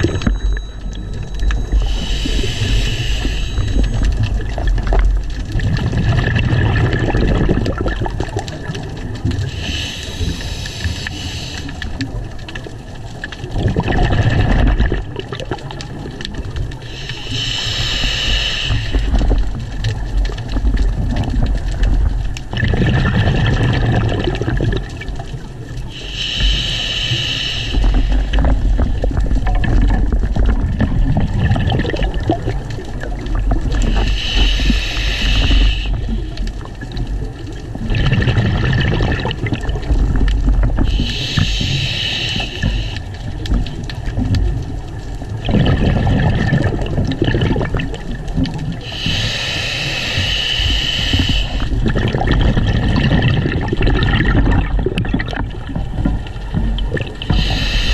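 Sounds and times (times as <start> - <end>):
exhaled air bubbling: 0.0 - 57.9
hissing regulator inhales: 1.7 - 4.1, 9.4 - 12.0, 16.8 - 19.2, 25.9 - 28.4, 33.8 - 36.3, 40.9 - 43.1, 48.8 - 51.8, 57.2 - 57.9.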